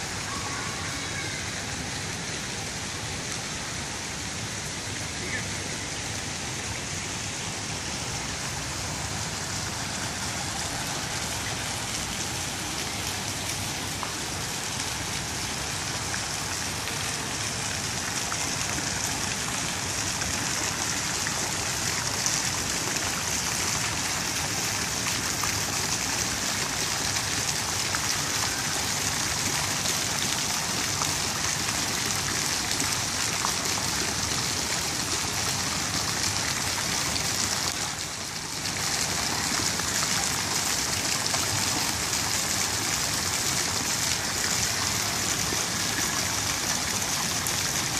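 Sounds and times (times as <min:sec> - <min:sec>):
fountain jets splashing: 0:00.0 - 0:47.9.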